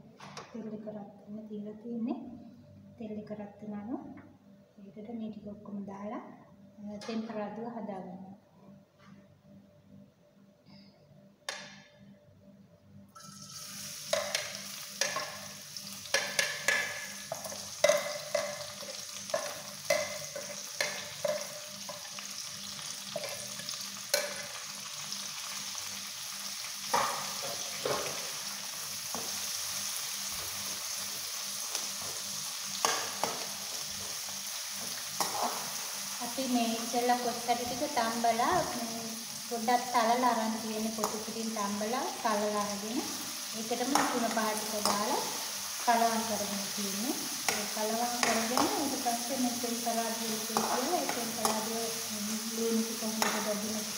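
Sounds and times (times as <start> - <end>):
food sizzling in hot oil: 13.2 - 53.9
metal spoon scraping a pan: 35.2 - 35.8.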